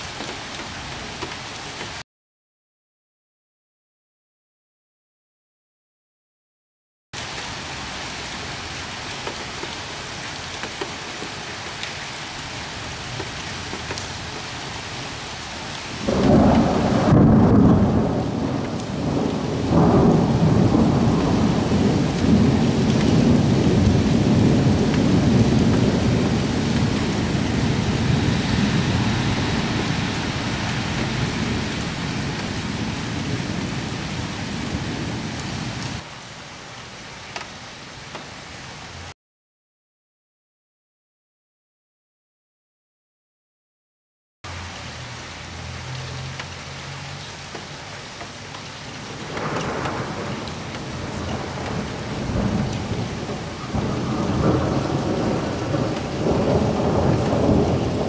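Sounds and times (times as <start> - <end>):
steady rain: 0.0 - 2.0, 7.2 - 39.2, 44.5 - 58.0
thunder rumbling: 16.0 - 36.0, 49.1 - 58.0.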